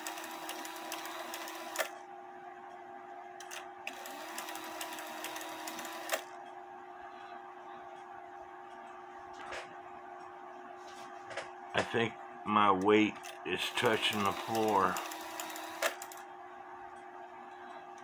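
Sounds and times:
clock gear train ticking whirr: 0.0 - 1.9, 13.6 - 16.2.

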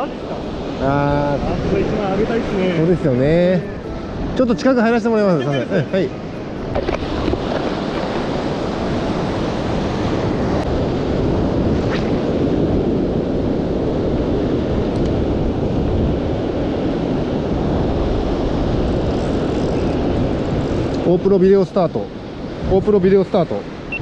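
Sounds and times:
surf breaking on a beach: 0.0 - 24.0
wind buffeting microphone: 5.7 - 24.0.

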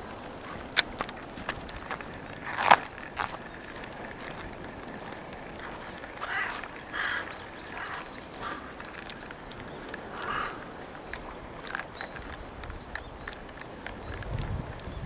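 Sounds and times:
high insect drone: 0.0 - 15.0
rough animal calls: 5.6 - 11.0.

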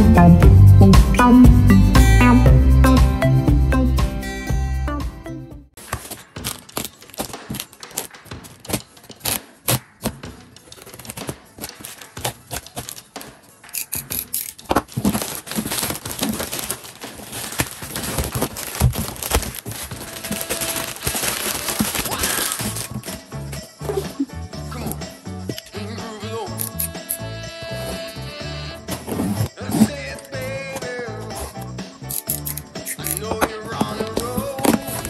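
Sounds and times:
utility knife slitting plastic: 5.8 - 23.2, 32.1 - 35.0
plastic mailer crinkling: 5.8 - 23.4, 32.2 - 35.0
cardboard box pulled out: 14.8 - 23.2.

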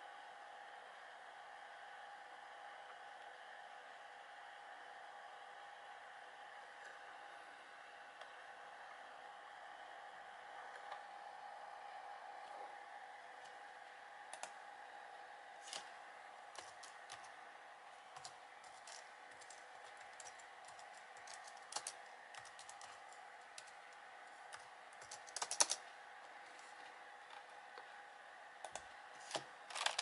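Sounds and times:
faint steady hum: 0.0 - 30.0
computer keyboard typing: 14.3 - 14.6, 16.5 - 17.3, 18.1 - 25.9, 28.6 - 30.0.

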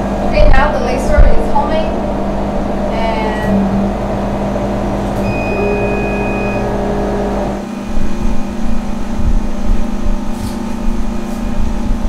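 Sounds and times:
laser cutter humming: 0.0 - 12.0
high steady tone: 1.1 - 9.2.

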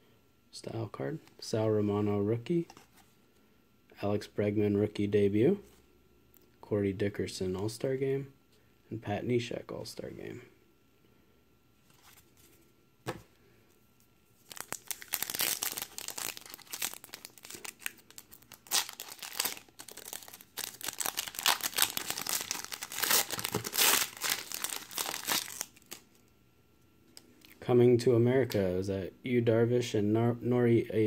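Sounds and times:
foil wrapper tearing and crinkling: 14.4 - 26.0.

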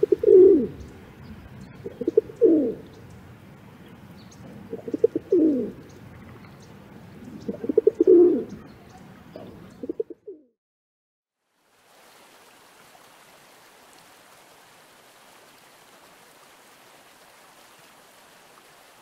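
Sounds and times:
pigeon cooing: 0.0 - 0.9, 1.7 - 2.9, 4.4 - 6.5, 7.2 - 10.5.

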